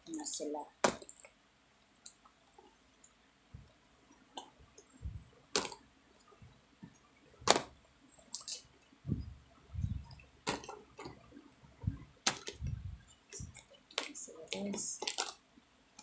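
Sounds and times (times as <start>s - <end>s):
plastic containers clacking: 5.5s - 5.8s, 7.4s - 7.7s, 9.9s - 15.4s.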